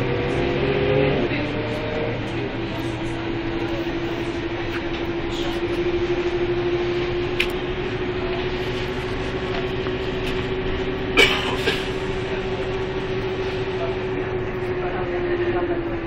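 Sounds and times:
bus running noise rising in pitch: 0:00.0 - 0:16.0
bus body clattering: 0:09.2 - 0:13.7.

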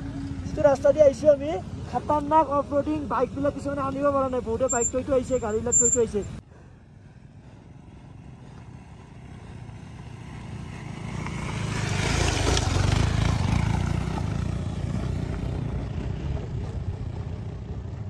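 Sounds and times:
motorcycle engine passing: 0:07.2 - 0:18.0.

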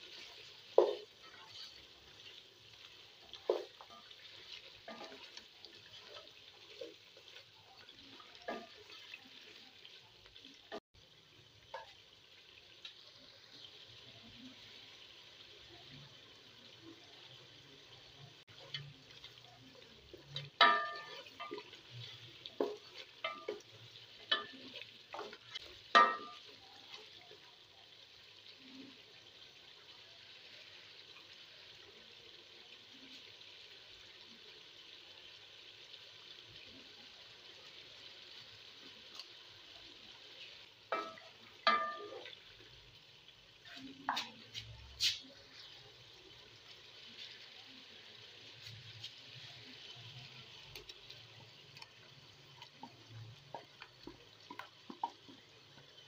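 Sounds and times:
chicken sizzling in oil: 0:00.0 - 0:56.0
wooden spatula knocking pot: 0:26.0 - 0:26.4.

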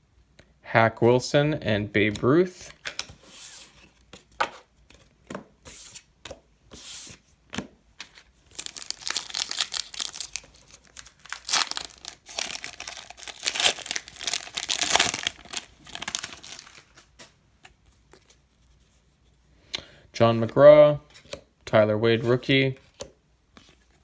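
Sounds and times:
foil pack crinkling and tearing: 0:08.5 - 0:17.1.

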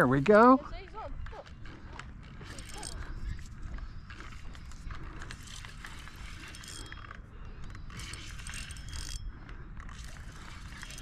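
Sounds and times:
fishing reel clicking whir: 0:02.2 - 0:11.0.

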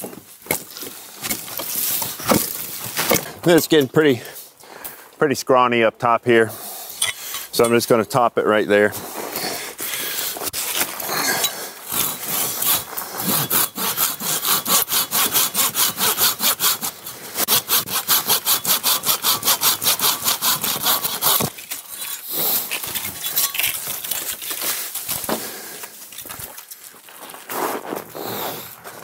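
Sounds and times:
hand saw cutting wood: 0:09.1 - 0:25.6.

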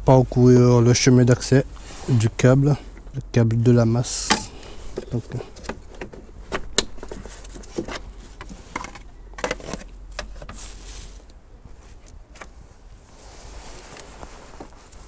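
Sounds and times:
faint steady background noise: 0:00.0 - 0:15.0
light clicks and knocks of plastic parts: 0:04.2 - 0:10.6.

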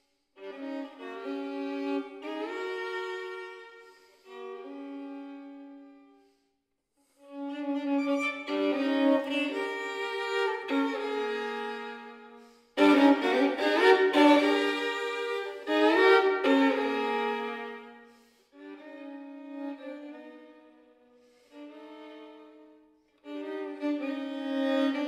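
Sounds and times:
solo violin playing: 0:00.0 - 0:06.4, 0:07.2 - 0:25.0.

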